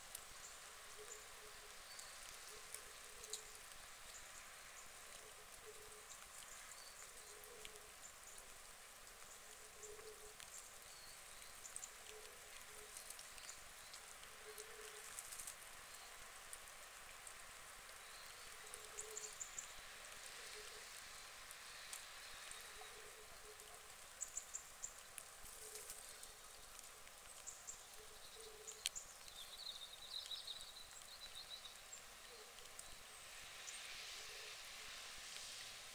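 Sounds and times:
soft outdoor hiss: 0:00.0 - 0:35.9.

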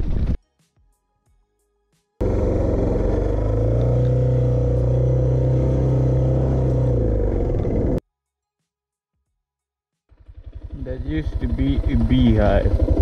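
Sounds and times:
motorcycle engine running: 0:02.2 - 0:08.0, 0:10.1 - 0:13.0.

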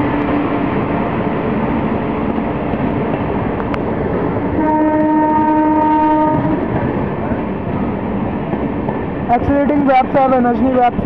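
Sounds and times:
train wheels rumbling on rail: 0:00.0 - 0:11.0
train horn: 0:04.6 - 0:06.7.

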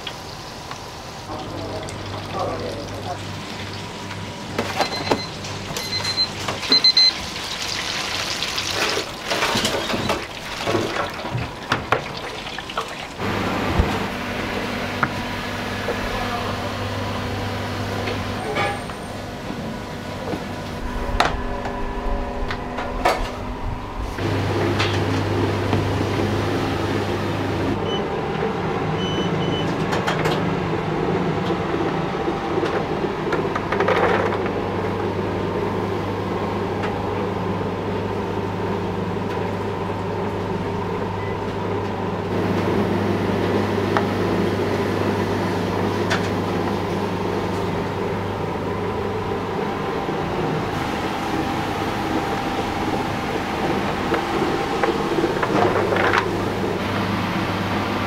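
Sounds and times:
noodle-cutting machine humming: 0:13.0 - 0:28.9, 0:42.2 - 0:58.0.

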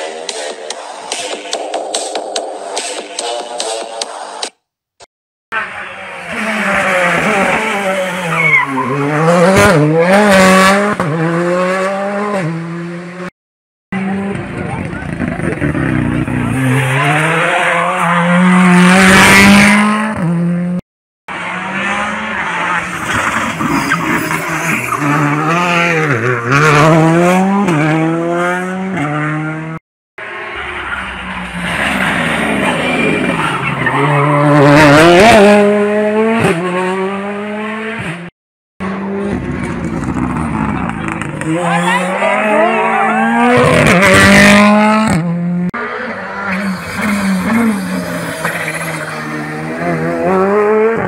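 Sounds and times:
rally car engine revving: 0:05.6 - 0:13.3, 0:14.0 - 0:51.0
tyre squeal: 0:08.0 - 0:09.1, 0:46.5 - 0:49.3.

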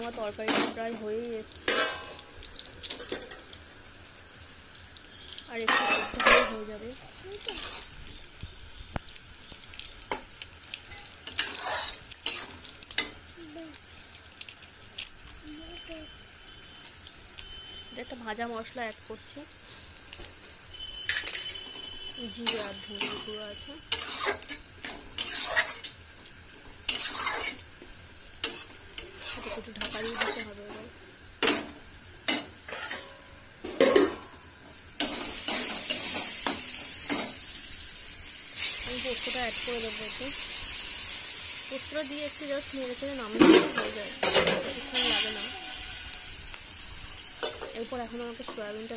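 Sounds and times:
curry sizzling: 0:00.0 - 0:48.9
metal spatula scraping a wok: 0:01.6 - 0:02.3, 0:05.7 - 0:06.8, 0:07.5 - 0:07.9, 0:11.0 - 0:13.1, 0:22.4 - 0:26.0, 0:26.8 - 0:27.6, 0:28.4 - 0:30.8, 0:32.3 - 0:33.2, 0:43.4 - 0:46.5.

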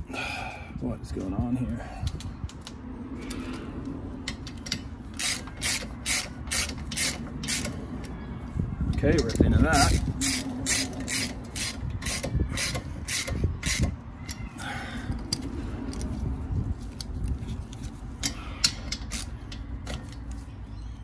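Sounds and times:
ratchet wrench clicking: 0:04.2 - 0:07.8, 0:09.2 - 0:14.4, 0:18.2 - 0:20.2.

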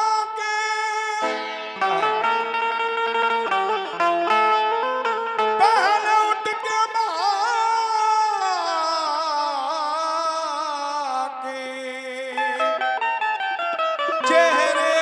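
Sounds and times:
instrumental accompaniment: 0:00.2 - 0:08.5, 0:12.6 - 0:15.0
person singing wordless vocal line: 0:05.6 - 0:13.0, 0:14.2 - 0:15.0.

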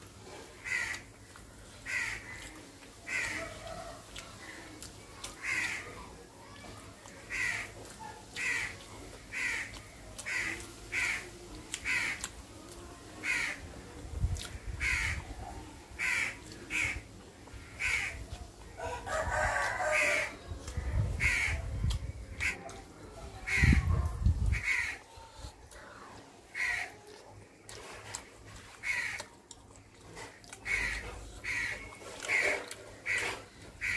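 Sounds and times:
crows cawing: 0:00.6 - 0:01.1, 0:01.8 - 0:03.5, 0:05.4 - 0:05.9, 0:07.3 - 0:07.8, 0:08.4 - 0:12.2, 0:13.2 - 0:13.6, 0:14.8 - 0:15.2, 0:16.0 - 0:17.0, 0:17.6 - 0:18.2, 0:21.2 - 0:21.6, 0:24.5 - 0:25.0, 0:26.5 - 0:27.0, 0:28.8 - 0:29.3, 0:30.2 - 0:33.9
rooster crowing: 0:18.8 - 0:20.4.

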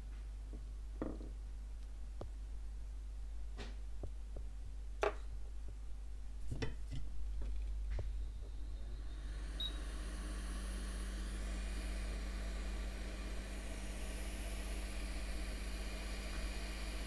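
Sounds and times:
hot air fan blowing hiss: 0:08.6 - 0:17.0.

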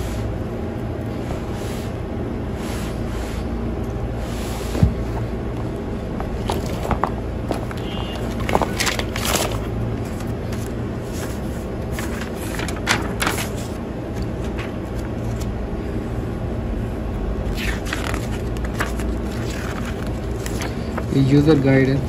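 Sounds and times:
steady low hum: 0:00.0 - 0:22.0
paper pages rustling: 0:04.5 - 0:15.6, 0:17.4 - 0:22.0.

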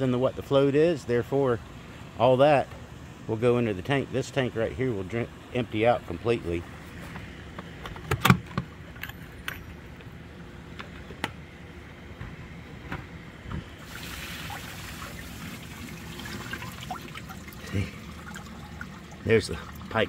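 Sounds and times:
water pouring into tub: 0:13.8 - 0:20.0.

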